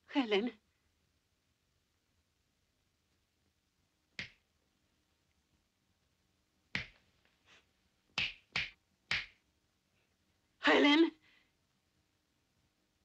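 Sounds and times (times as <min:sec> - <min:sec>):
fingers snapping: 0:08.2 - 0:09.4.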